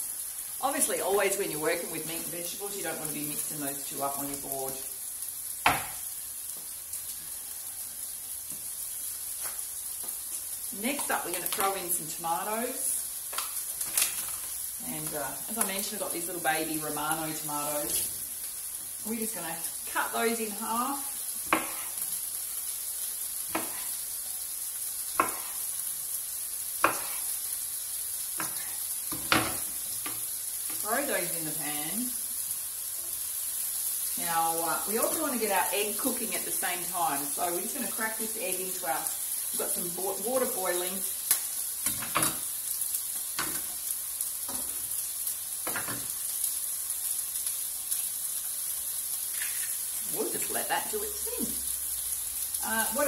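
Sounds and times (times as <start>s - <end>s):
food sizzling in pan: 0.0s - 53.0s
knife tapping wooden cutting board: 5.7s - 5.9s.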